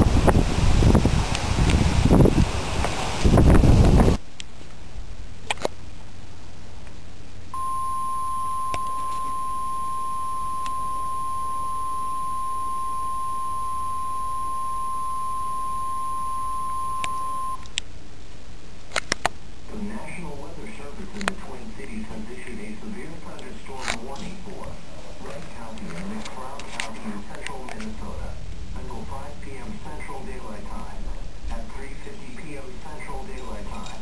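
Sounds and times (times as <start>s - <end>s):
emergency alert tone: 7.6s - 17.7s.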